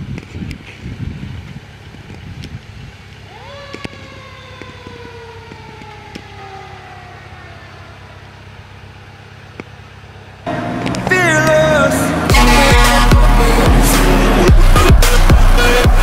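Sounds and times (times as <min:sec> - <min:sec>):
truck engine: 0:00.0 - 0:16.0
fire engine siren: 0:03.2 - 0:16.0.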